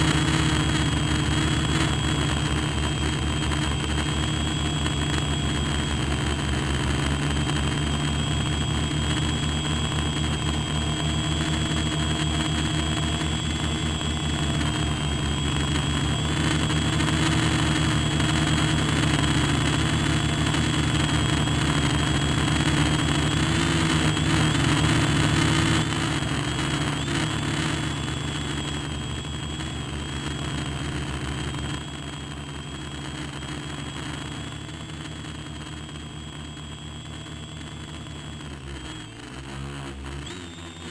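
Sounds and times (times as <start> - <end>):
model aircraft motor buzzing: 0.0 - 40.9.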